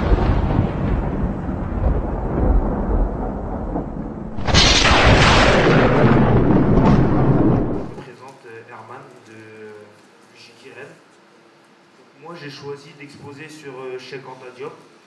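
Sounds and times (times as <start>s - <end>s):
deep noisy rumble: 0.0s - 8.0s
loud impact hit: 4.2s - 8.0s.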